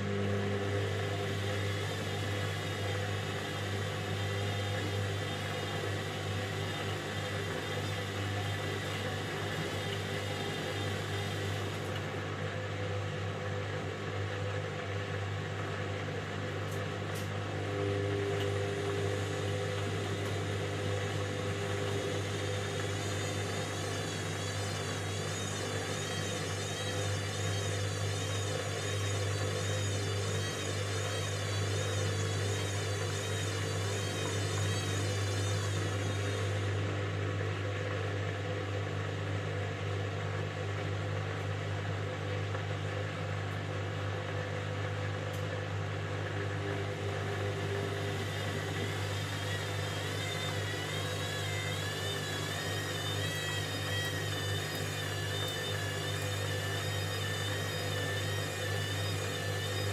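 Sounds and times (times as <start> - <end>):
faint wavering high whine: 0.0 - 12.2, 17.4 - 37.7, 46.3 - 59.9
washing machine humming: 0.0 - 59.9.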